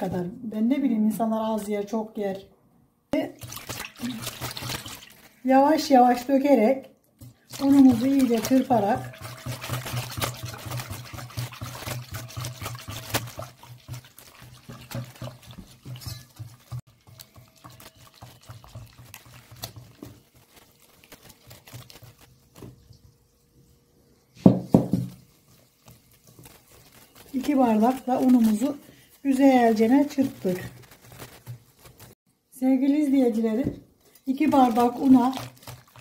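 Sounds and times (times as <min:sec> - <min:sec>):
whisk stirring and scraping bowl: 0:03.4 - 0:05.4, 0:07.2 - 0:23.0, 0:24.4 - 0:32.2, 0:34.0 - 0:36.0
water pouring: 0:03.4 - 0:05.5, 0:07.4 - 0:22.3, 0:34.3 - 0:36.0.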